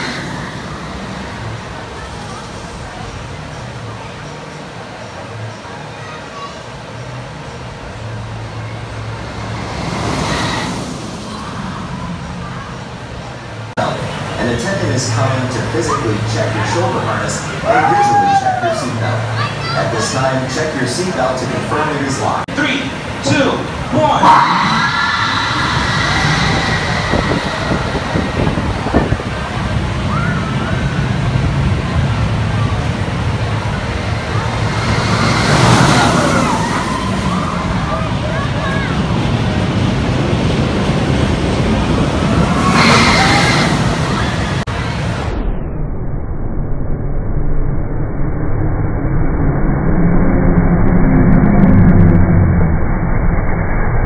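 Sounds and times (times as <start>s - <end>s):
scattered voices: 0.0s - 45.4s
roller coaster train rumbling: 0.0s - 45.8s, 47.4s - 54.0s.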